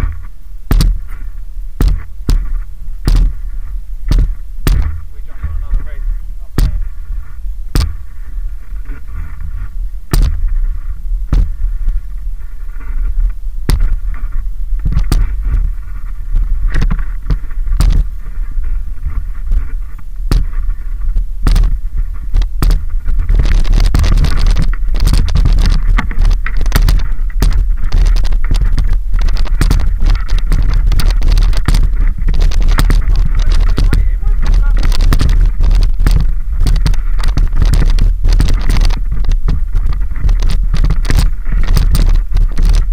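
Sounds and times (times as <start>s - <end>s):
tyres rattling on loose dirt: 0.0s - 42.9s
wind on microphone: 0.0s - 42.9s
bike chain and frame knocks: 4.1s - 5.8s, 6.6s - 6.9s, 22.4s - 42.9s.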